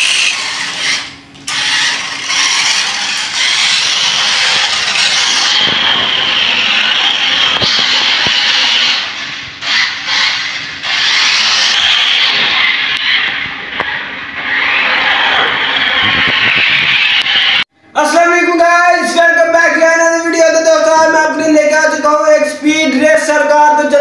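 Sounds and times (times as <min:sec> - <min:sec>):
toy car motor whirring: 0:00.0 - 0:13.4.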